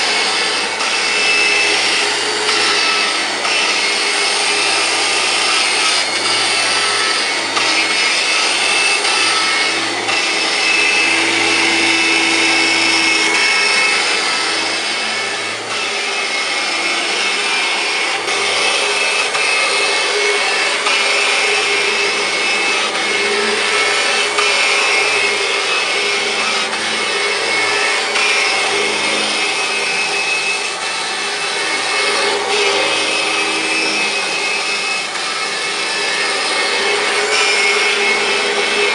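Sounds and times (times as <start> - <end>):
vacuum cleaner motor whine: 0.0 - 38.9.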